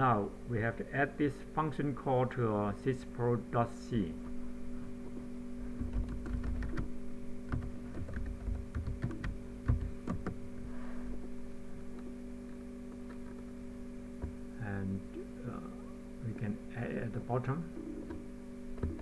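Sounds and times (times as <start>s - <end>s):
steady background hum: 0.0s - 19.0s
computer keyboard typing: 5.8s - 6.9s, 7.5s - 10.4s, 18.8s - 19.0s.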